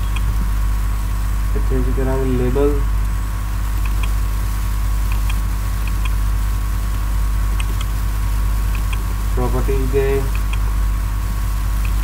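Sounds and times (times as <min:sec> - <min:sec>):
low electrical hum: 0:00.0 - 0:12.0
computer mouse clicks: 0:03.8 - 0:04.2, 0:05.1 - 0:06.2, 0:07.6 - 0:07.9, 0:08.7 - 0:09.0.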